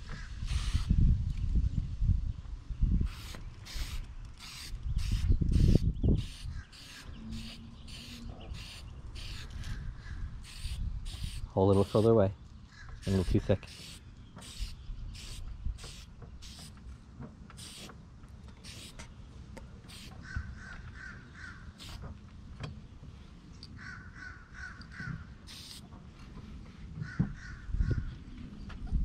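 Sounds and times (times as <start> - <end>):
spray paint can hissing: 0.4 - 0.9, 3.1 - 9.6, 10.4 - 12.1, 13.0 - 16.7, 17.6 - 17.9, 18.6 - 19.0, 19.9 - 20.2, 21.8 - 22.0, 25.5 - 25.8
crow cawing: 23.8 - 25.2.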